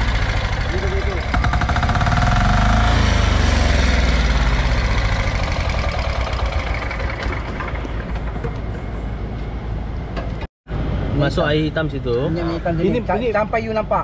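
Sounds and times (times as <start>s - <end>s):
diesel water pump engine idling: 0.0s - 9.3s.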